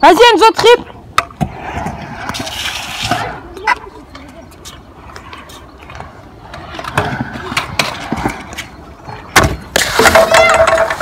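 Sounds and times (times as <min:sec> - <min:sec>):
scooter wheels rolling on concrete: 0:00.0 - 0:11.0
scooter banging on concrete: 0:09.1 - 0:11.0.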